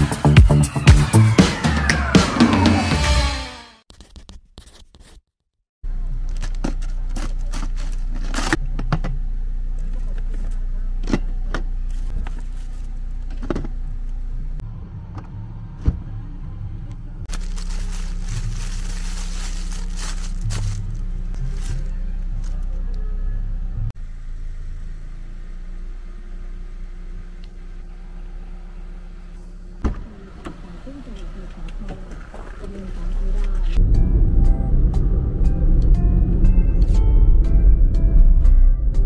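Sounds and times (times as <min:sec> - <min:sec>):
car interior drone: 0:05.9 - 0:39.0
containers and bags handled: 0:17.3 - 0:22.7.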